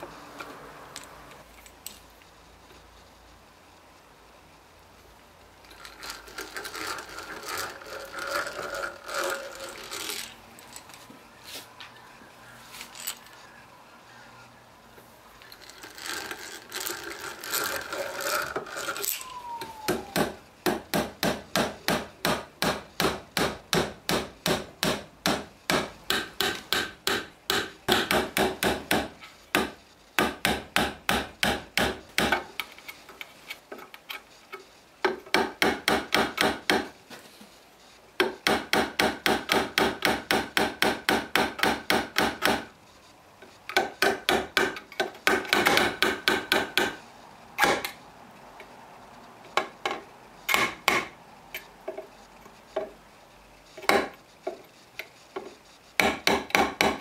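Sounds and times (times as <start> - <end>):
hammer driving nails into wood: 19.9 - 32.5, 35.1 - 36.9, 38.2 - 42.7, 43.7 - 47.0, 47.6 - 48.0, 49.6 - 51.1, 53.8 - 54.1, 56.0 - 57.0.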